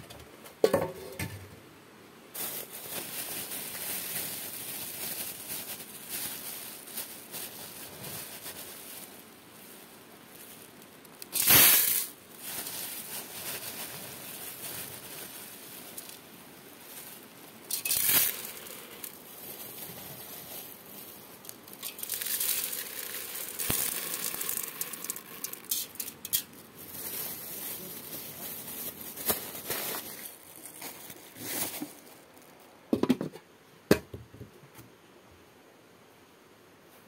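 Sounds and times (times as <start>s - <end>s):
rustling handling noise: 2.4s - 33.4s.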